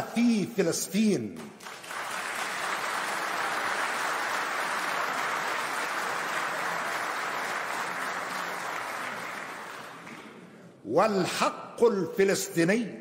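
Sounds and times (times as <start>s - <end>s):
large audience applauding: 1.4s - 10.5s.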